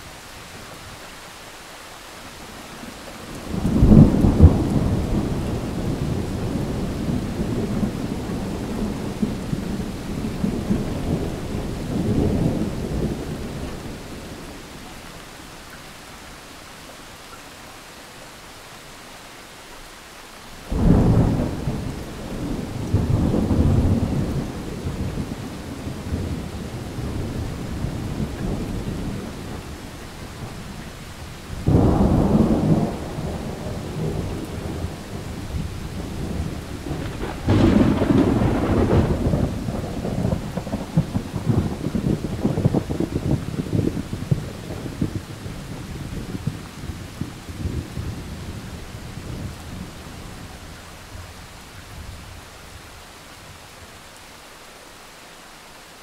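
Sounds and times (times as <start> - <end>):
steady rain: 0.0 - 56.0
thunder rumbling: 3.3 - 14.7, 20.7 - 51.4.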